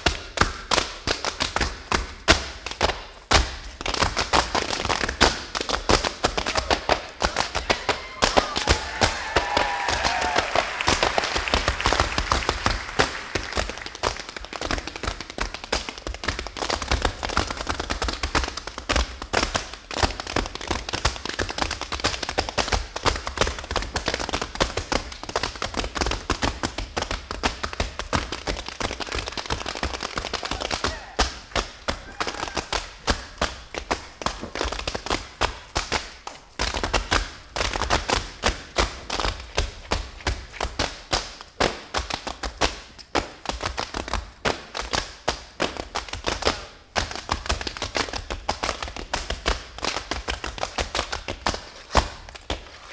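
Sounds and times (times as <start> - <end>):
tap shoes on wooden stage: 0.0 - 52.9.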